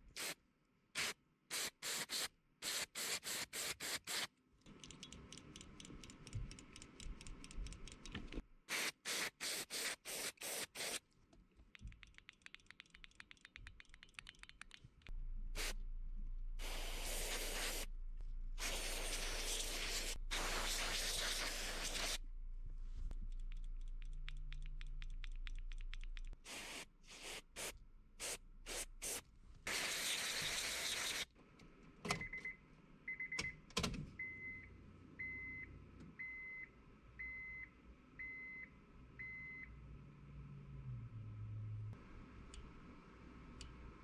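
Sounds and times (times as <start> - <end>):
aerosol spray bursts: 1.0 - 4.3, 8.7 - 11.0, 16.6 - 17.9, 18.6 - 22.2, 26.5 - 31.2
aerosol spray hissing: 8.7 - 11.0, 15.6 - 15.8, 16.6 - 17.9, 18.6 - 22.2, 26.5 - 31.2
sharp clicks: 11.7 - 15.1, 23.3 - 26.4.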